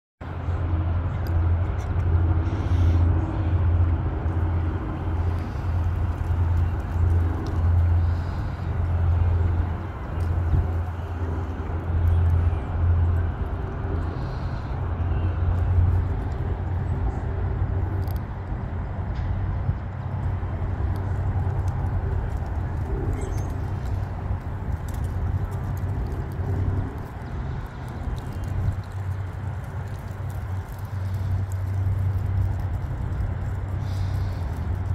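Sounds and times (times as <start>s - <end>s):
tugboat diesel engine drone: 0.2s - 34.9s.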